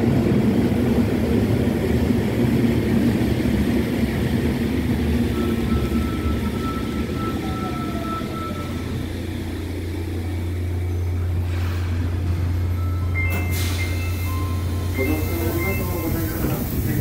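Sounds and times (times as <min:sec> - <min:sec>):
high steady beeps: 0:05.3 - 0:09.0, 0:12.7 - 0:16.6
train motor whine: 0:05.3 - 0:17.0
air hiss: 0:13.4 - 0:17.0.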